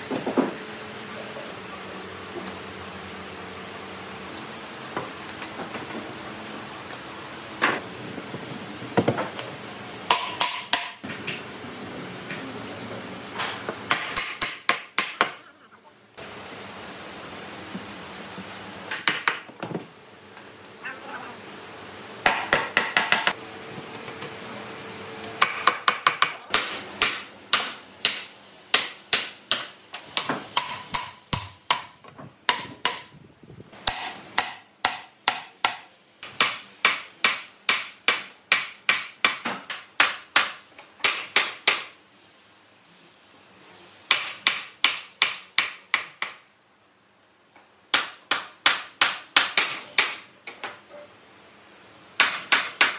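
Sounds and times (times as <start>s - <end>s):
hammering on wood: 10.1s - 11.0s, 13.9s - 15.4s, 18.9s - 19.8s, 22.2s - 23.4s, 25.4s - 33.1s, 33.8s - 42.0s, 44.1s - 46.4s, 47.9s - 50.3s, 52.2s - 52.9s.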